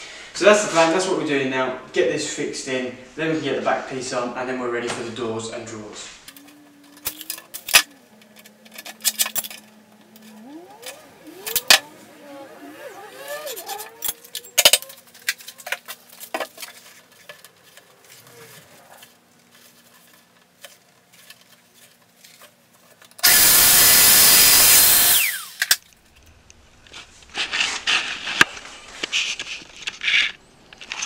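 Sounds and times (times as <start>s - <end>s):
rustling: 5.9s - 23.0s
power joiner whining: 6.3s - 16.7s, 23.2s - 25.8s
tools being handled: 6.3s - 23.4s.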